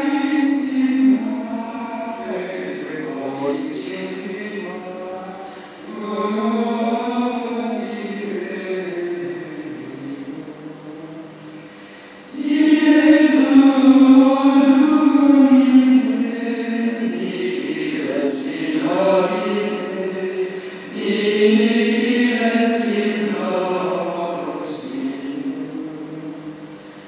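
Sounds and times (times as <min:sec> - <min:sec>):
plainchant singing: 0:00.0 - 0:27.0.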